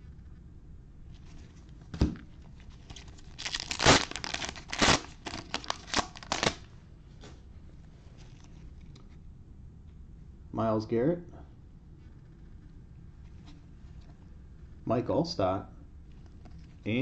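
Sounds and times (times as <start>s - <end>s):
plastic wrapper tearing and crinkling: 2.8s - 6.7s.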